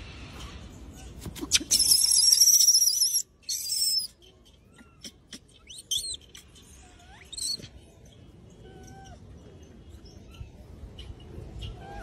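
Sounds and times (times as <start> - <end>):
monkey screaming: 1.4 - 4.1
monkey chirping calls: 1.4 - 9.5.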